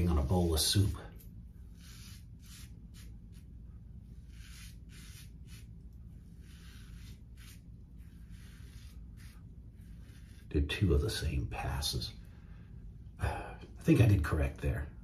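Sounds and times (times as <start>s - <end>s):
razor scraping beard stubble: 0.0s - 10.8s.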